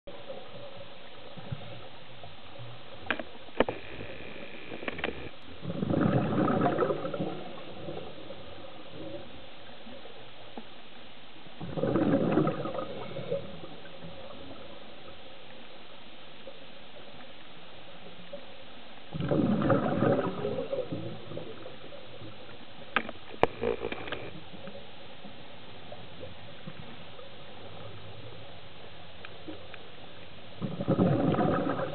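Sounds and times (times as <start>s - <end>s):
sharp clicks: 3.0s - 5.4s
exhaled bubbles underwater: 5.5s - 10.1s, 11.6s - 15.1s, 19.1s - 22.5s, 30.6s - 31.9s.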